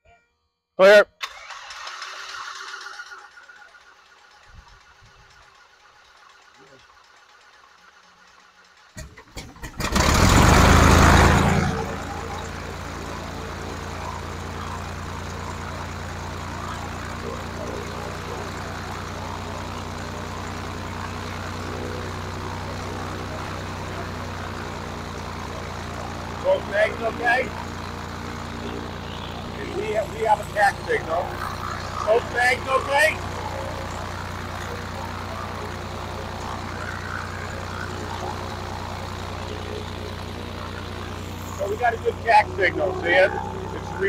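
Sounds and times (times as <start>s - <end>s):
propeller aircraft engine drone: 1.2s - 44.0s.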